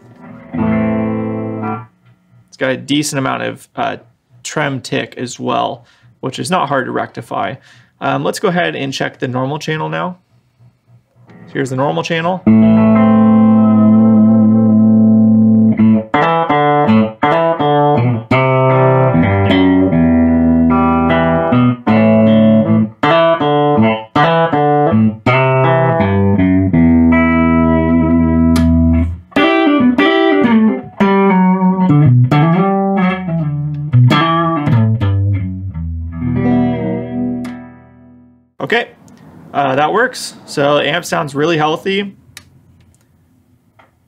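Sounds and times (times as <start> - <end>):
clean electric guitar: 0.0 - 2.6, 10.8 - 39.3.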